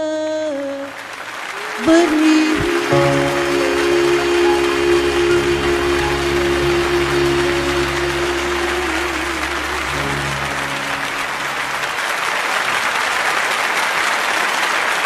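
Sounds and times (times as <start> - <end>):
audience applauding: 0.6 - 15.0
band holding final chord: 2.1 - 12.2.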